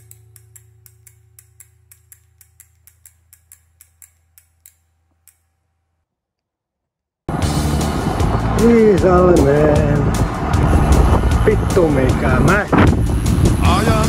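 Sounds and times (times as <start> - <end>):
mechanical ticking: 0.0 - 5.4.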